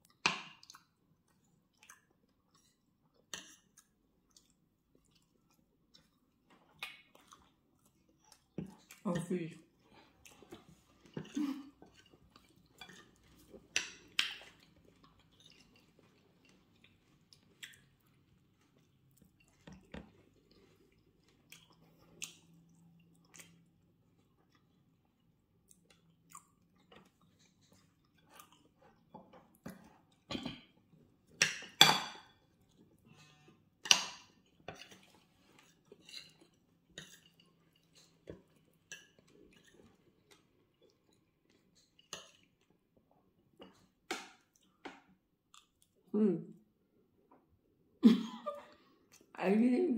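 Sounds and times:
close chewing: 0:00.1 - 0:30.3.

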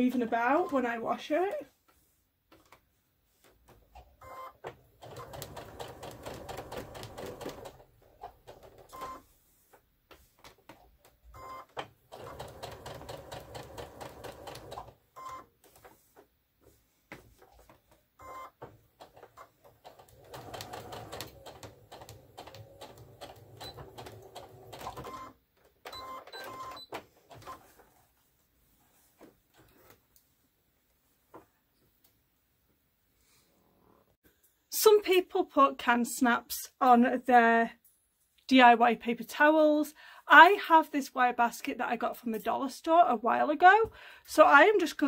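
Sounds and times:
sewing machine stitching: 0:04.3 - 0:09.2, 0:11.4 - 0:15.8, 0:18.2 - 0:27.8.

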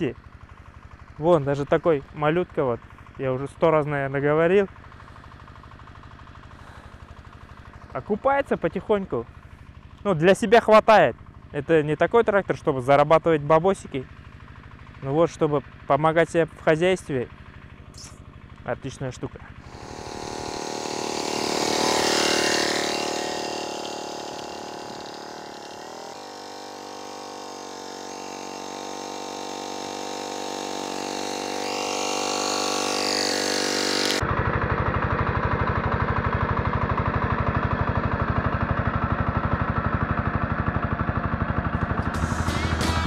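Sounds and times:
diesel engine running under load: 0:00.0 - 0:43.0
rotary tiller churning soil: 0:19.6 - 0:42.1.

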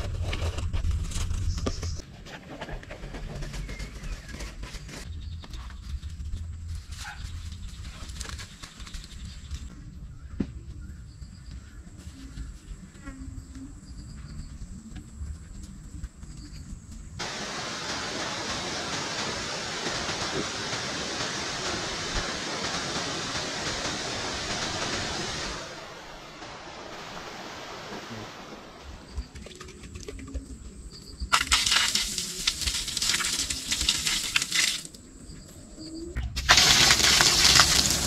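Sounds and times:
waterfall pouring into pool: 0:17.2 - 0:25.8, 0:31.3 - 0:34.9, 0:36.4 - 0:38.0.

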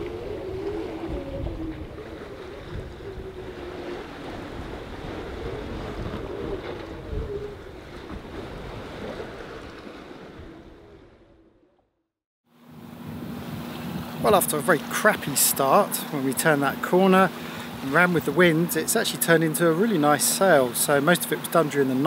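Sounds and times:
wind buffeting microphone: 0:00.0 - 0:11.5, 0:12.8 - 0:15.4
wavering hum: 0:00.0 - 0:11.7
sea washing around boat: 0:00.0 - 0:11.9, 0:12.6 - 0:22.0.

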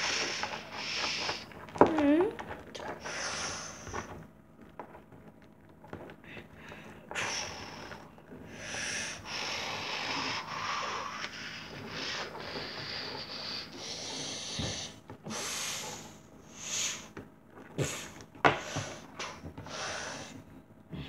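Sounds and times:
person making raspy hissing breaths: 0:00.0 - 0:01.5, 0:03.0 - 0:04.1, 0:07.1 - 0:17.1, 0:17.8 - 0:20.4.

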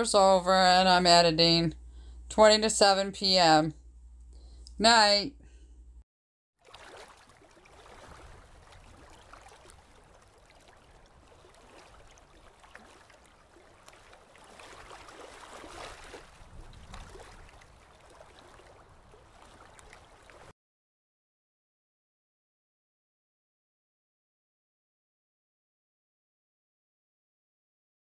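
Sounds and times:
small waves washing onto sand: 0:06.6 - 0:20.5.

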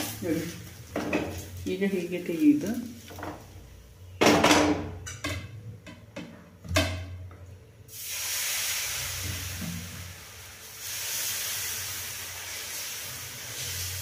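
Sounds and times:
batter sizzling in hot pan: 0:00.0 - 0:03.6, 0:07.9 - 0:14.0.

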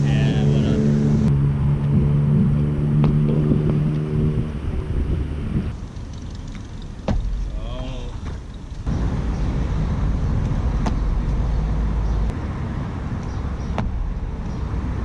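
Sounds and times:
road traffic rumble: 0:00.0 - 0:15.0
footsteps on pavement: 0:10.4 - 0:12.3.

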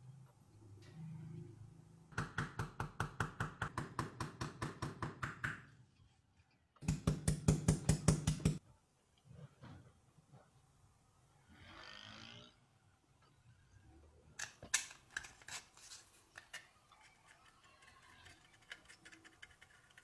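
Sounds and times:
small hammer tapping sheet metal: 0:06.8 - 0:08.6.

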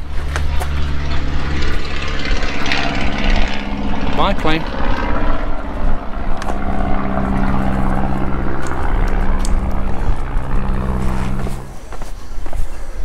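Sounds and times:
propeller aircraft droning: 0:00.0 - 0:13.0.

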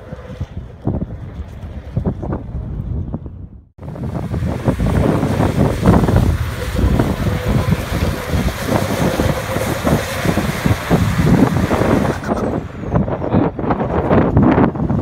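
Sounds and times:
wind buffeting microphone: 0:00.0 - 0:15.0
truck engine working hard: 0:03.8 - 0:15.0
tyres churning mud: 0:03.8 - 0:15.0.

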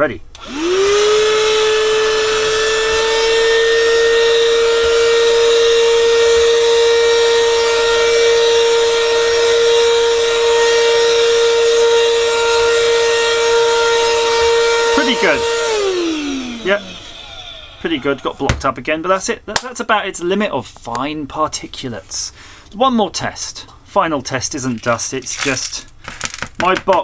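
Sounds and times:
handheld vacuum motor whine: 0:00.4 - 0:18.3.

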